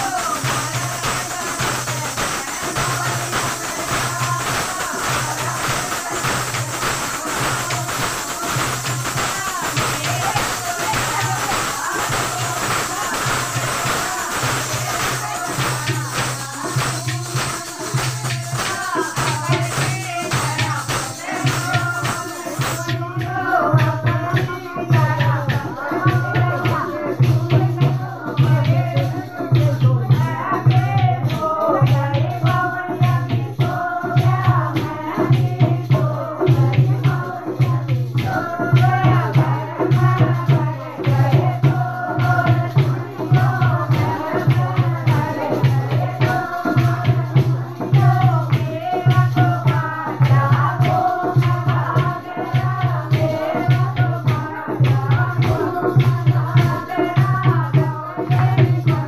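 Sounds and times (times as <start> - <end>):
rattling clicking percussion: 0.0 - 59.0
women singing together: 0.0 - 59.0.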